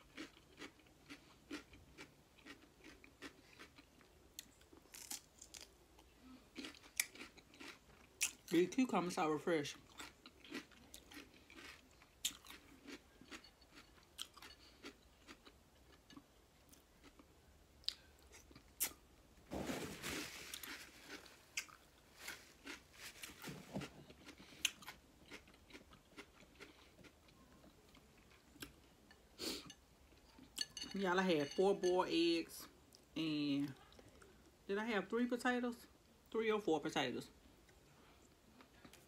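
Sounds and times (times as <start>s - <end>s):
crunchy chewing of cucumber: 0.0s - 8.5s, 9.8s - 19.0s, 20.1s - 28.8s
napkin paper rustling: 19.5s - 21.1s.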